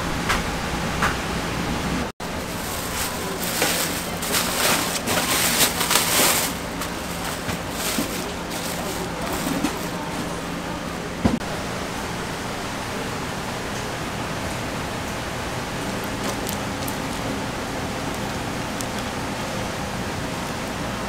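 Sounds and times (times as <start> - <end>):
steady kitchen hiss: 0.0 - 21.0
newspaper rustling and crackling: 2.2 - 10.4.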